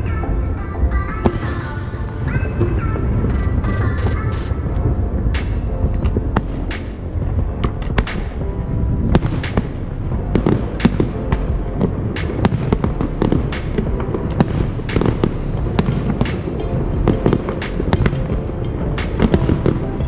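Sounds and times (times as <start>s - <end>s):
steady low rumble: 0.0s - 20.0s
fireworks bangs and crackles: 5.4s - 18.4s, 19.0s - 19.8s.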